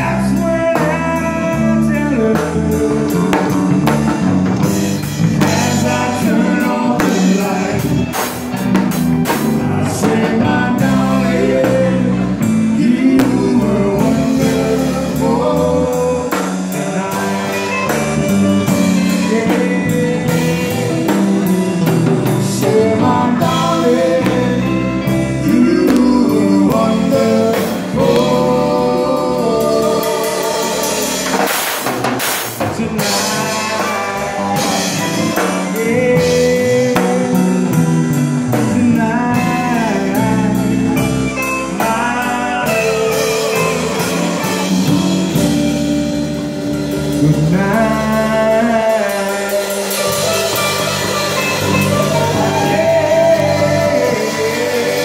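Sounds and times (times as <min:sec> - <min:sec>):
man singing: 0:00.0 - 0:31.8, 0:32.6 - 0:55.0
drum kit: 0:00.0 - 0:55.0.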